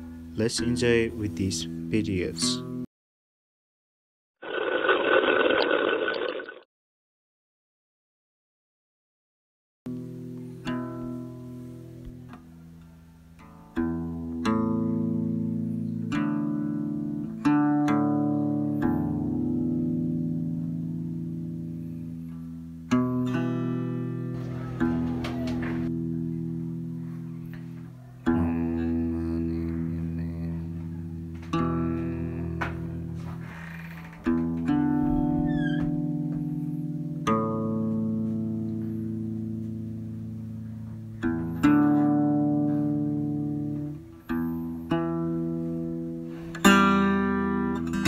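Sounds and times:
slow guitar chords ringing: 9.9 - 33.6, 34.2 - 48.0.

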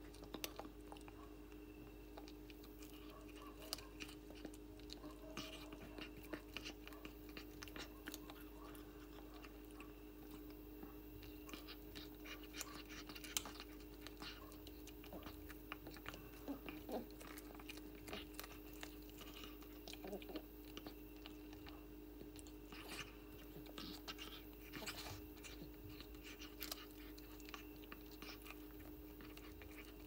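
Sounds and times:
cat chewing: 0.0 - 30.0.

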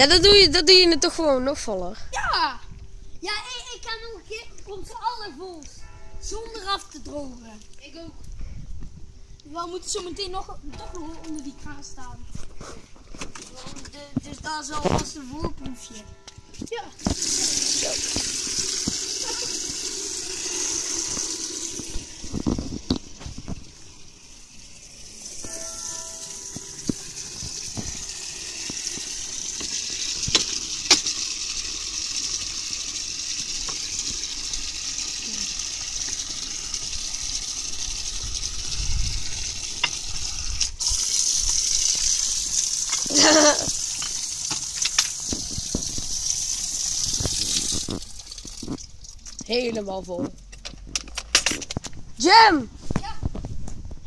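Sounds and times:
water running into plastic bucket: 17.0 - 25.6, 26.2 - 49.6.

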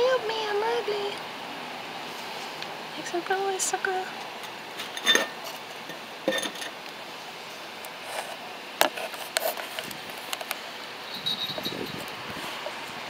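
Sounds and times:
clinks on glass tumbler: 6.3 - 6.7, 11.1 - 11.8.

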